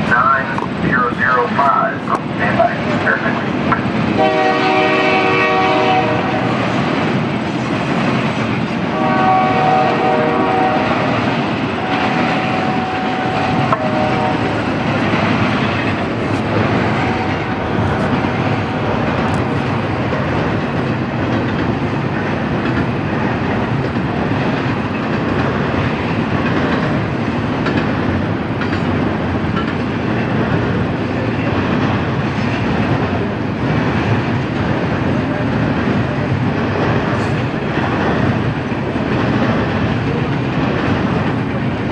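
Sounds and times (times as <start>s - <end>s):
freight train rumbling: 0.0s - 41.9s
wheels clacking on rails: 0.0s - 41.9s
locomotive horn blasts: 4.2s - 6.6s, 8.9s - 11.2s, 11.8s - 14.7s.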